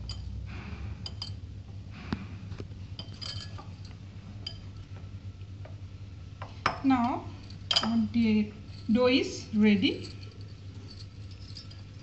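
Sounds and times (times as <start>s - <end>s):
bangles clinking on glass bowl: 0.0s - 0.4s, 1.1s - 1.4s, 3.0s - 4.9s, 6.6s - 12.0s.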